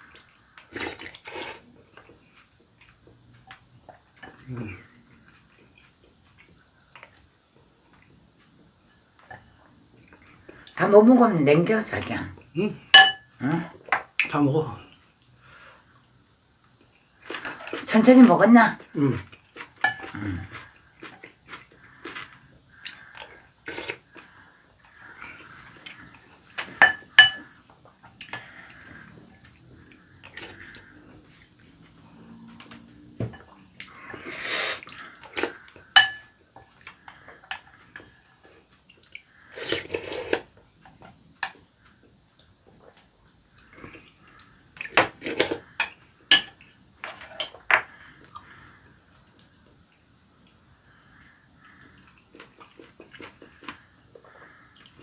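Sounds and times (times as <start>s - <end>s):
wet slurping: 0.1s - 1.8s, 33.8s - 35.7s
spoon clinking on glass bowl: 13.0s - 13.3s, 26.8s - 27.4s, 36.0s - 36.3s.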